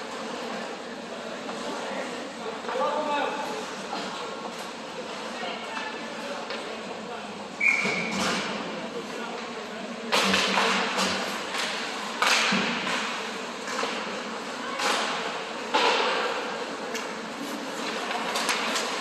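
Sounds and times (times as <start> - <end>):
puck and sticks banging boards: 10.1 - 17.1.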